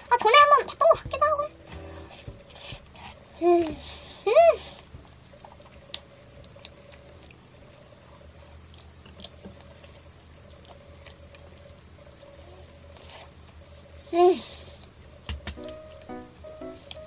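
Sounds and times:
faint steady hum: 0.0s - 17.0s
person chewing: 8.5s - 11.5s.

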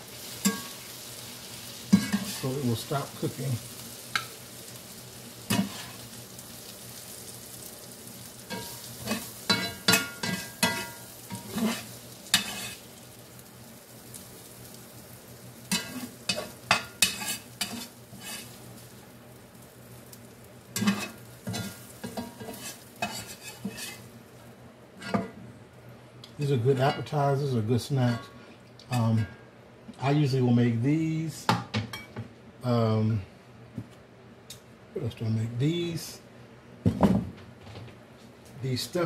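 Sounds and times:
pan sizzling: 0.0s - 25.4s
metal spatula scraping skillet: 1.9s - 2.6s, 5.5s - 6.0s, 8.5s - 12.8s, 15.7s - 18.6s, 20.8s - 24.1s.

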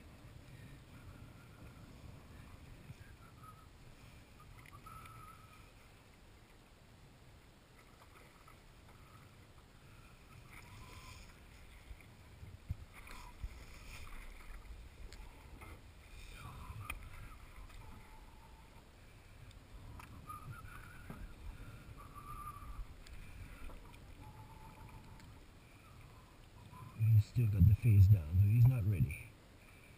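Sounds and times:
low rumbling: 27.0s - 29.2s.

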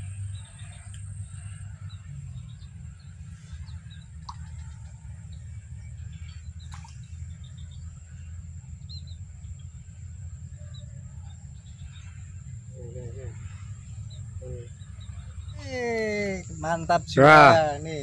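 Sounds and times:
faint high whine: 0.0s - 18.0s
steady low rumble: 0.0s - 18.0s
bird chirps and calls: 10.6s - 18.0s.

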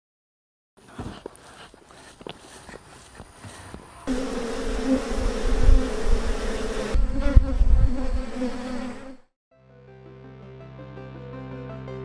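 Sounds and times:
honeybees buzzing: 0.8s - 9.3s
soft music: 9.6s - 12.0s.

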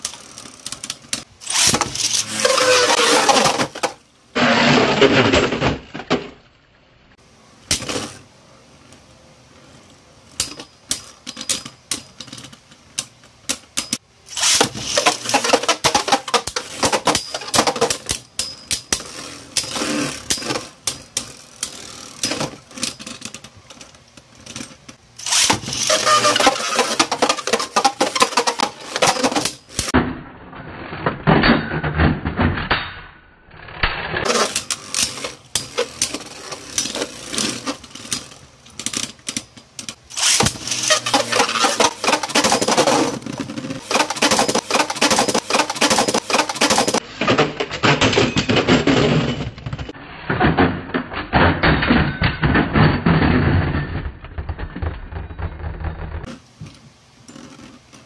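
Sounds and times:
spinning tops whirring and clashing: 0.0s - 3.8s, 13.8s - 23.0s, 25.2s - 30.0s, 40.0s - 47.2s.

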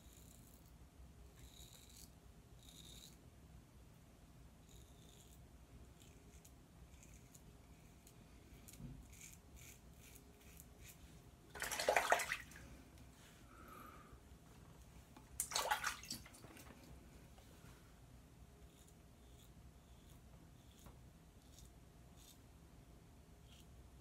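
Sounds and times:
razor scraping stubble: 1.3s - 3.2s, 4.6s - 11.1s, 18.6s - 22.5s
water splashing in sink: 11.5s - 12.6s, 15.4s - 16.7s.

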